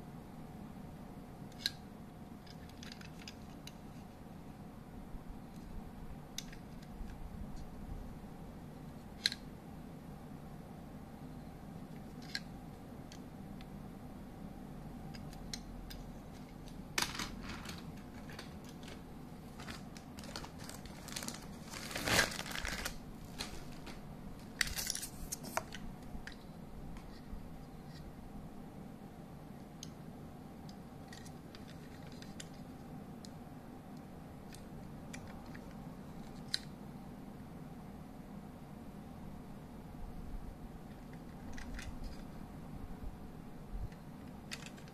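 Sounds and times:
plastic toy train handling: 2.4s - 4.1s, 15.1s - 26.4s, 31.1s - 32.6s, 40.9s - 42.3s, 44.2s - 44.9s.

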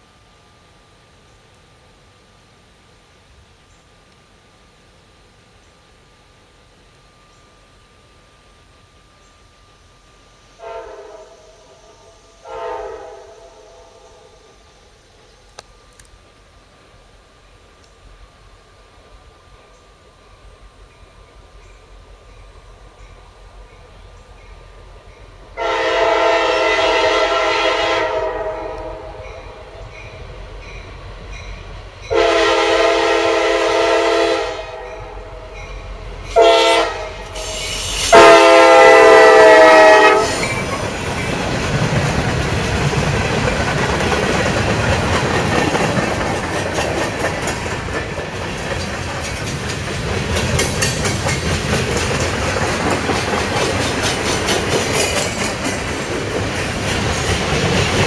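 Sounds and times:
locomotive passing: 9.6s - 58.0s
locomotive air horn: 10.6s - 14.4s, 25.6s - 29.6s, 32.1s - 35.5s, 36.3s - 40.5s
train wheels clattering on rails: 39.8s - 58.0s.

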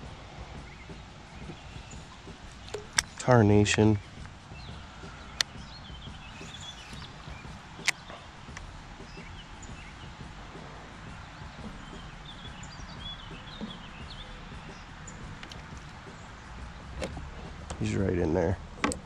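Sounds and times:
steady low rumble: 0.0s - 19.0s
faint high bird chirps: 0.5s - 8.3s.

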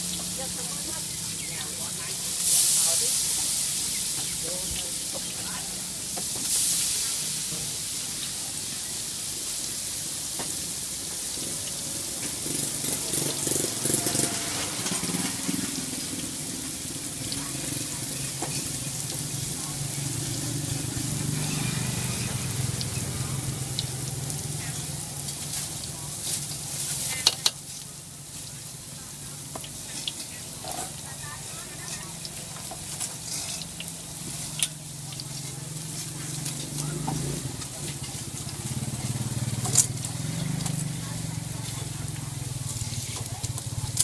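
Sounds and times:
batter deep-frying in oil: 0.0s - 44.0s.

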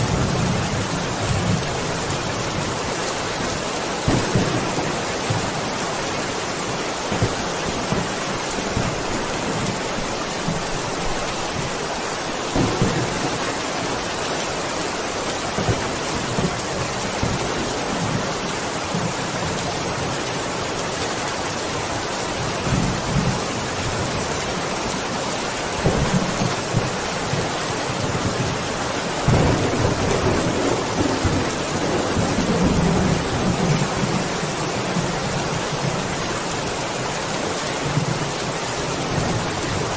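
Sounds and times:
heavy rain: 0.0s - 39.9s
thunder rumbling: 4.0s - 11.8s, 12.5s - 14.1s, 25.8s - 36.0s.

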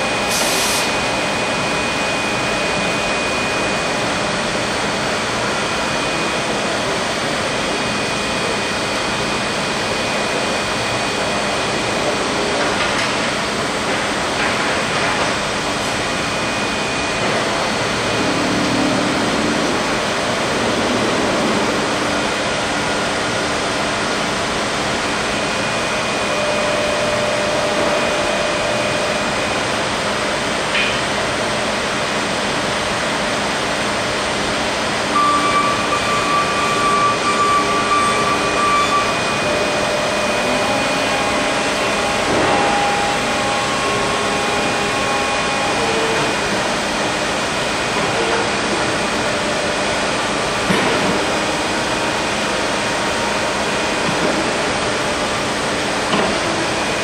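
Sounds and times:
thin high whine: 35.1s - 46.7s.

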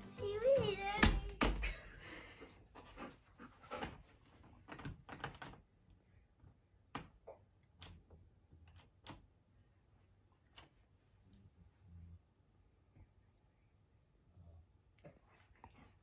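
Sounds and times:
dog sniffing: 2.8s - 4.4s.

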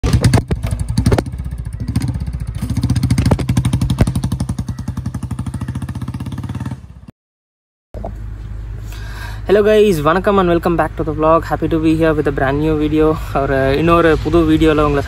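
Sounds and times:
motorcycle engine pulling away: 0.0s - 7.1s.

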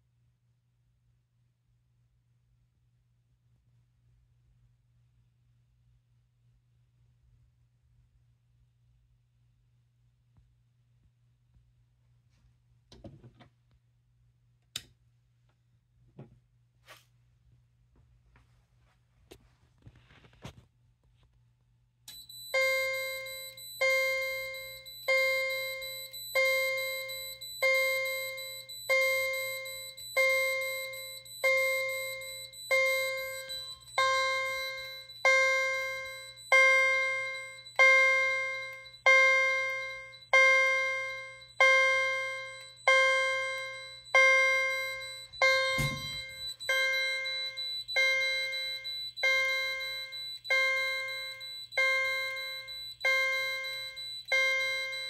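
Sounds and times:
fire alarm chime ringing: 22.1s - 55.0s
thump: 45.6s - 46.4s.

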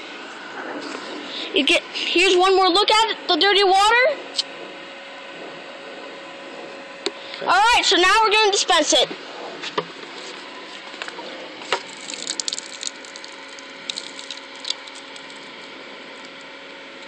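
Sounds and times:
water splashing onto gravel: 11.8s - 15.4s.

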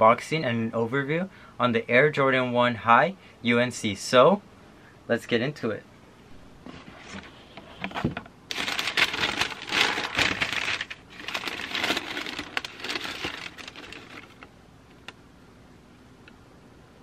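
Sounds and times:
tissue paper crinkling: 8.5s - 14.5s.

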